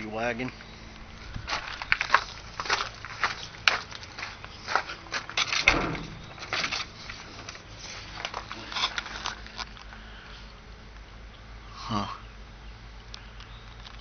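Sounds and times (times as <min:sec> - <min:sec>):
footsteps and scuffs climbing: 0:00.5 - 0:10.0
heavy thump: 0:05.6 - 0:06.8.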